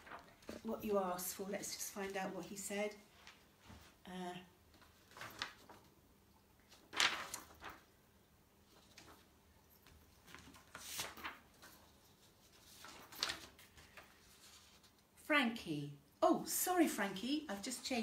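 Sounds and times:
paper rustling: 0.0s - 2.6s, 4.7s - 6.0s, 6.6s - 8.0s, 8.6s - 15.1s.

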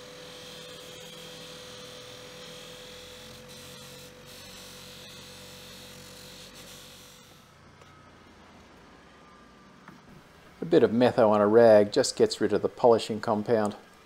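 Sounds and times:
bench grinder running: 0.0s - 7.6s.

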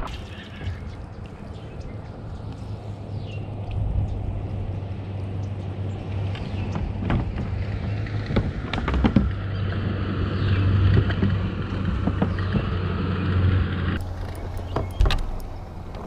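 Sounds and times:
low hum of moving boat: 0.0s - 16.0s
gear knocking on plastic hull: 14.0s - 16.0s.

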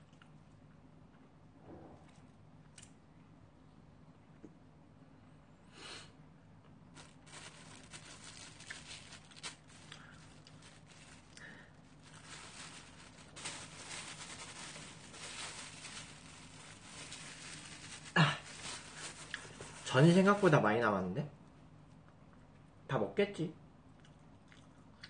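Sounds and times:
plastic wrap crinkling: 6.9s - 20.6s.

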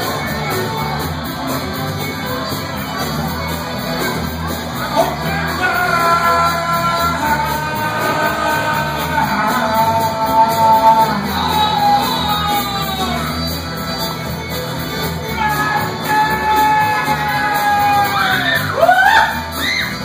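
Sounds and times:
live rock band playing: 0.0s - 20.0s
voice holding long notes: 4.7s - 14.4s, 15.0s - 20.0s.

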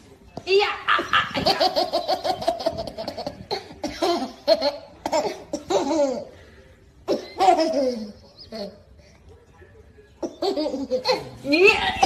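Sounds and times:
baby laughing: 0.9s - 6.4s, 7.1s - 8.8s, 10.2s - 12.0s.

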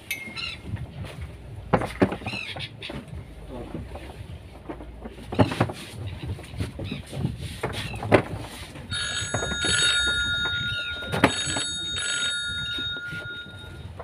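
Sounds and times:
mobile phone ringtone: 8.9s - 14.0s.

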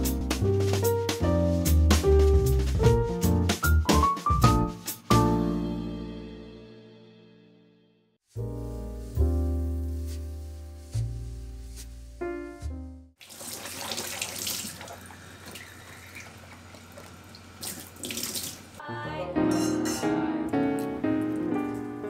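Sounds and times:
piano music: 0.0s - 13.2s, 18.8s - 22.0s
tap water running into sink: 13.2s - 18.8s.

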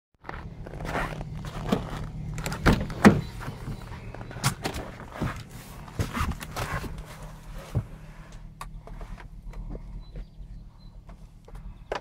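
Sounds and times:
footsteps crunching in snow: 0.2s - 8.3s
low hum: 0.2s - 12.0s
car door knocks and clunks: 1.6s - 7.0s.

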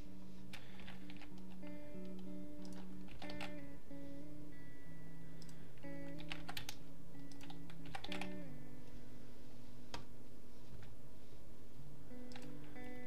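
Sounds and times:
soft guitar music: 0.0s - 13.0s
keyboard keys clicking: 0.5s - 3.6s, 5.4s - 8.4s, 12.3s - 12.6s.

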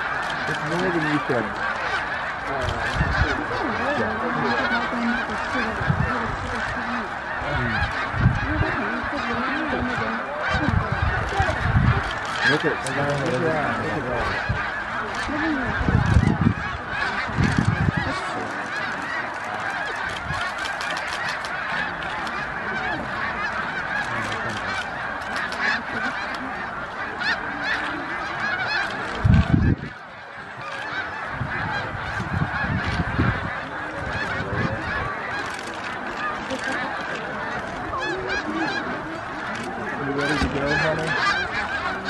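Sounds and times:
geese honking chorus: 0.0s - 42.0s.

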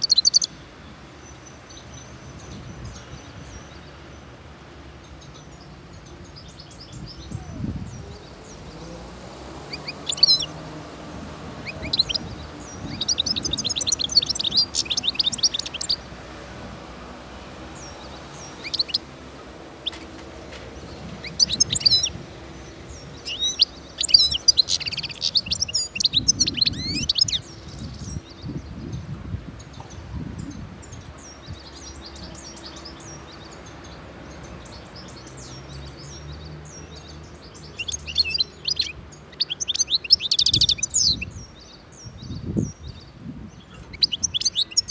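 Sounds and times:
goldfinch twittering: 0.0s - 0.6s, 9.6s - 10.7s, 11.3s - 16.1s, 17.7s - 19.1s, 20.8s - 28.4s, 30.5s - 44.9s.

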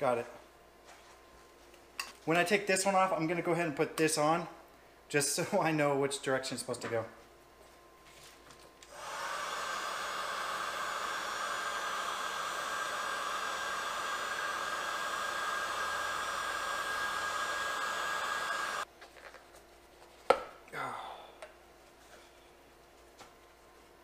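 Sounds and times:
heat gun blowing: 8.8s - 18.9s.

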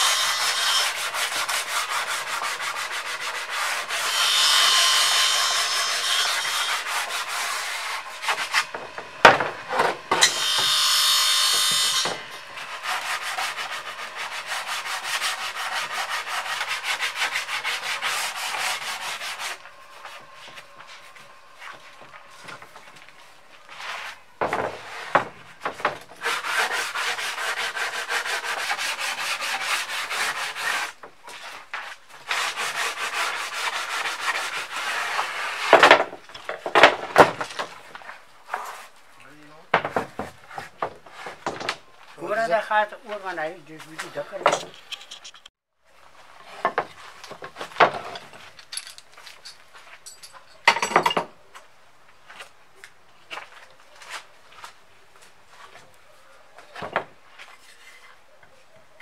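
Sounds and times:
wood boards being sanded: 0.0s - 22.8s, 23.7s - 37.9s.

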